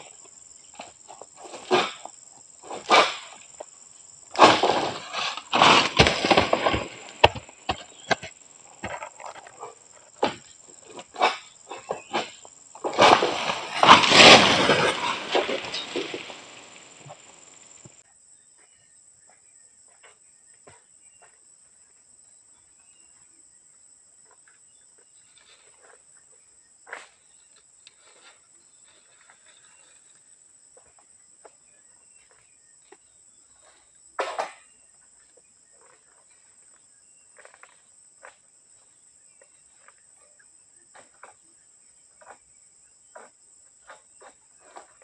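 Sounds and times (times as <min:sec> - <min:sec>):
palm frond crashing through leaves: 0:04.4 - 0:07.9, 0:12.1 - 0:17.6.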